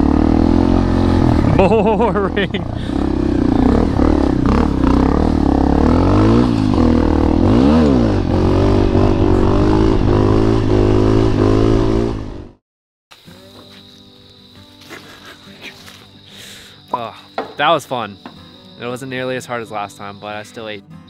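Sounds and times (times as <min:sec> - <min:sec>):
dirt bike engine revving: 0:00.0 - 0:12.6.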